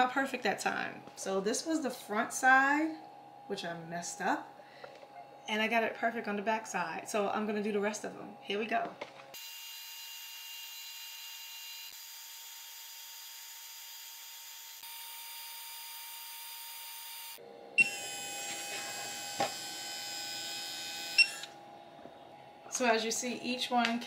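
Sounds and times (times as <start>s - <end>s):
steady hum with thin tones: 0.0s - 9.4s, 20.0s - 24.0s
laser engraver whining: 9.4s - 21.8s.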